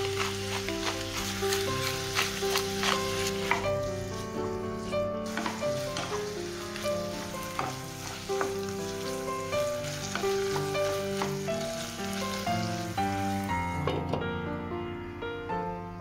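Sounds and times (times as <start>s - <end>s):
wooden spatula scraping a pan: 0.0s - 12.8s
food sizzling in a frying pan: 0.0s - 13.9s
background music: 0.0s - 16.0s
spatula tapping a pan: 5.3s - 6.2s, 7.4s - 8.7s.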